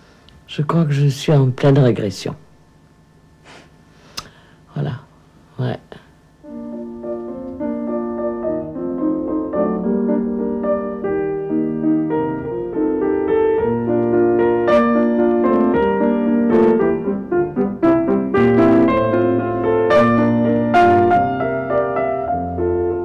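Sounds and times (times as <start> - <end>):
piano chords and notes: 6.4 - 23.0.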